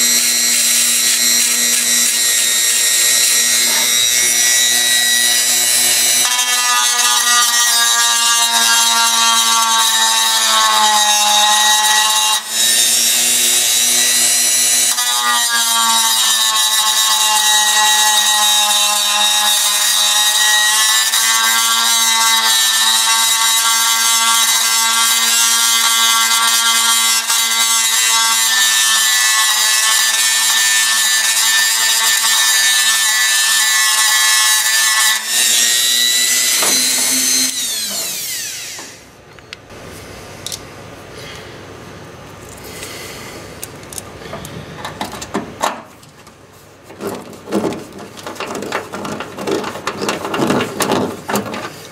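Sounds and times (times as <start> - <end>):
power tool motor whining: 35.2 - 39.1.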